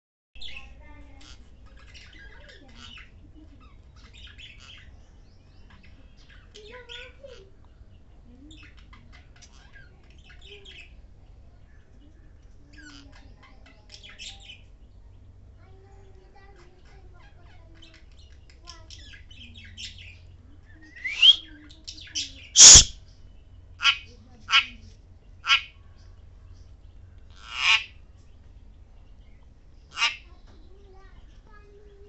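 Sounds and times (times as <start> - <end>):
parrots chirping and squawking: 0.5 - 5.0, 5.6 - 7.6, 8.5 - 11.0, 12.7 - 14.7, 16.5 - 23.0, 23.8 - 24.8, 25.4 - 25.9, 27.3 - 28.1, 29.9 - 30.4.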